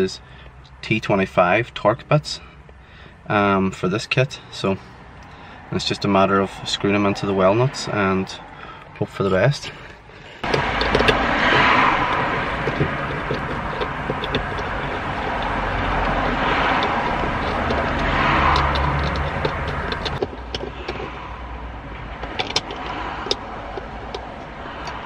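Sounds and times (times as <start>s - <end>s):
road traffic: 0.0s - 25.0s.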